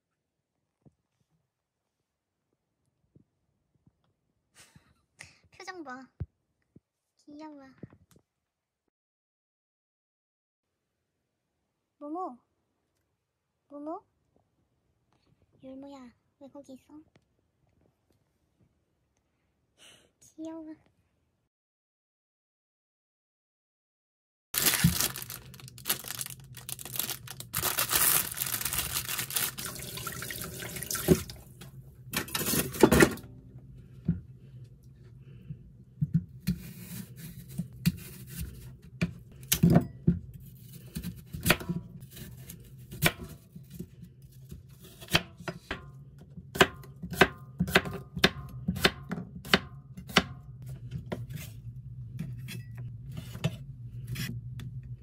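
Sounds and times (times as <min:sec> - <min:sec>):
plastic bag crinkling: 0:24.6 - 0:31.4
knife chopping on wooden board: 0:46.5 - 0:50.4.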